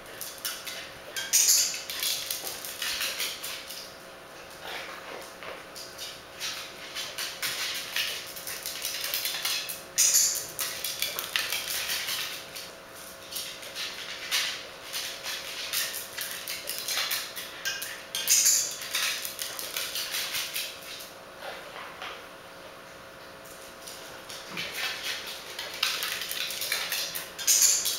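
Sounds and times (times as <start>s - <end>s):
dog claws clicking on tiles: 0.2s - 3.9s, 4.6s - 21.1s, 23.5s - 27.9s.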